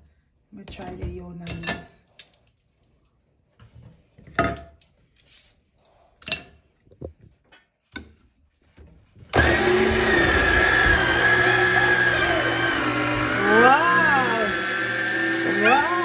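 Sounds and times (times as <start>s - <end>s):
electric motor whining: 9.4s - 16.0s.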